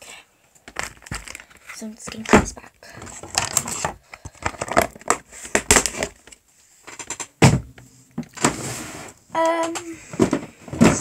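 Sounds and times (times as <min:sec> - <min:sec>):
plastic bottles clicking and knocking: 0:00.6 - 0:08.5, 0:09.5 - 0:11.0
heavy thump: 0:07.4 - 0:07.8.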